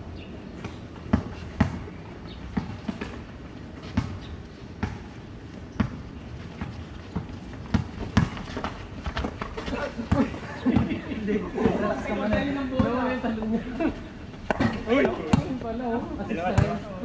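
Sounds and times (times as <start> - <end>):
basketball bouncing on concrete: 1.1 - 1.8, 4.8 - 5.1, 6.6 - 10.9, 11.7 - 13.1, 16.5 - 16.8
players' footsteps: 2.5 - 16.8.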